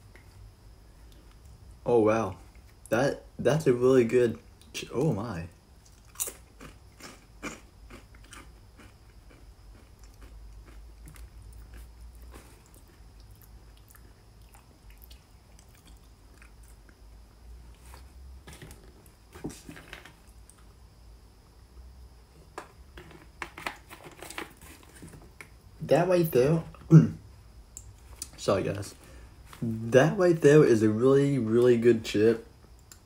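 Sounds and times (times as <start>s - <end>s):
person chewing potato chips: 5.8s - 17.0s.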